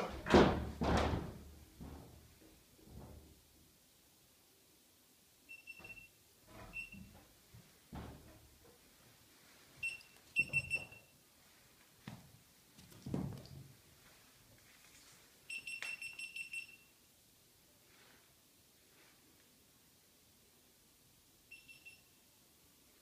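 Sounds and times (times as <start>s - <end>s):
dull thumps: 0.0s - 3.4s, 7.0s - 8.4s.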